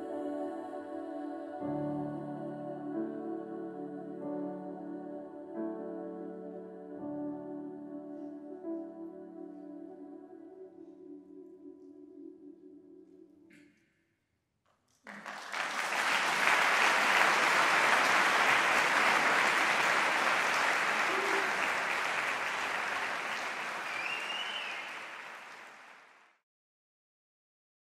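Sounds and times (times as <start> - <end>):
audience applauding: 15.0 - 26.2.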